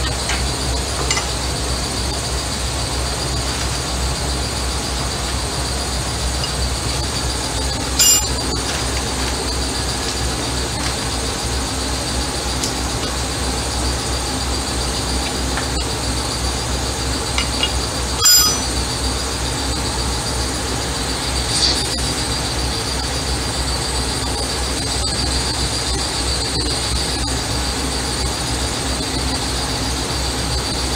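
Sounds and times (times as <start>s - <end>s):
machine hum with high whine: 0.0s - 30.9s
tools clinking on steel: 8.0s - 8.4s, 17.4s - 18.8s.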